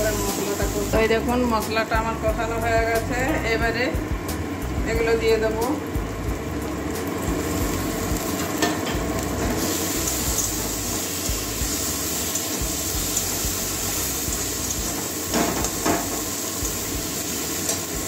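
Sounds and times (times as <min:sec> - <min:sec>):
shrimp sizzling in a pan: 0:00.0 - 0:02.6, 0:03.2 - 0:18.0.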